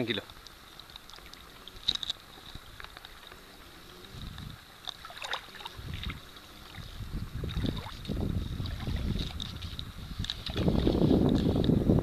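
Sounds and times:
faint hiss of shallow water: 0:00.0 - 0:12.0
wind buffeting microphone: 0:03.9 - 0:12.0.

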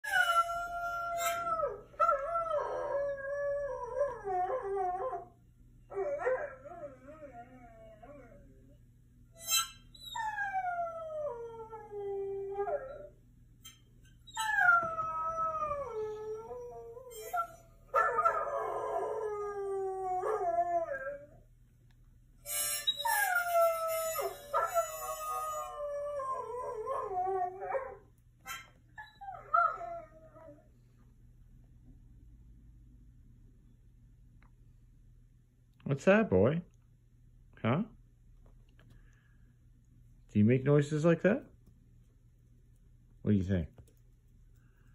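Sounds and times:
dog howling through speakers: 0:00.0 - 0:05.3, 0:10.1 - 0:13.2, 0:14.3 - 0:21.4, 0:23.1 - 0:28.1.

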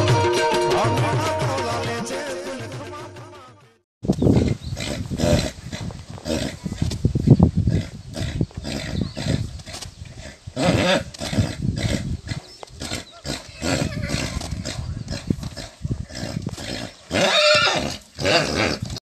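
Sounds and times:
horse calls in bursts: 0:10.5 - 0:12.2, 0:12.8 - 0:15.4, 0:16.3 - 0:19.0
horse high-pitched call: 0:17.2 - 0:18.8.

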